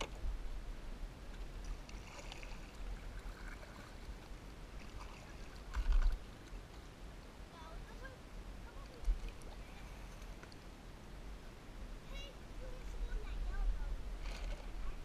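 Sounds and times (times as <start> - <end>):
water lapping around kayak hull: 0.0 - 11.4, 12.2 - 15.0
paddle drips and splashes: 1.3 - 7.0, 8.7 - 10.7.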